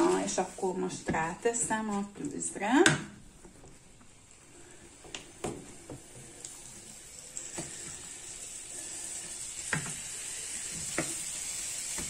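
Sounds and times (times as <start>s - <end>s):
chicken sizzling in frying pan: 4.2s - 12.0s.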